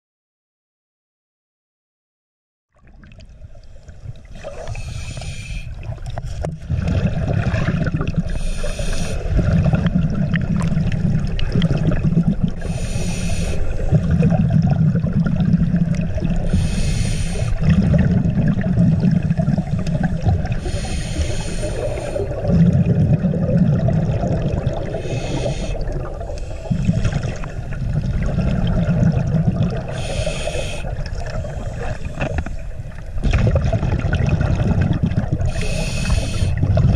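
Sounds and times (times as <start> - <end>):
exhaled bubbles rumbling: 2.7 - 36.9
regulator inhale hiss: 3.5 - 6.5, 8.2 - 9.4, 12.6 - 14.0, 16.4 - 17.7, 20.5 - 22.4, 24.8 - 27.2, 29.8 - 32.8, 35.4 - 36.6.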